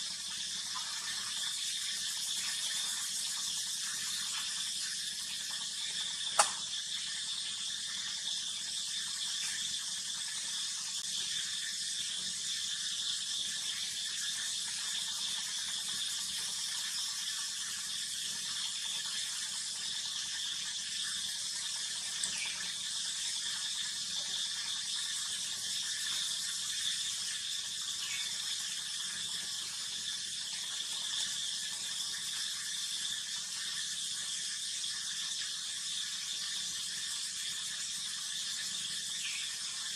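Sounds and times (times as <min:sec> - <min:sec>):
sharp click: 0:06.4 - 0:06.6.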